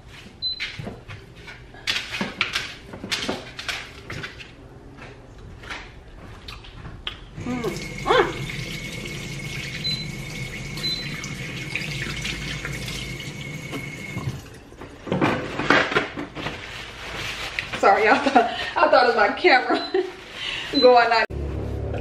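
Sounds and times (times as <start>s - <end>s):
faucet running into sink: 7.6s - 14.6s.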